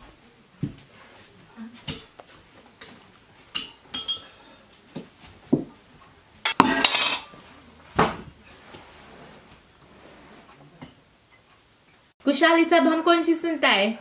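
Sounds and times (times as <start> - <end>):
steel cups and cutlery clinking: 2.8 - 4.6, 6.4 - 7.4, 10.8 - 11.9.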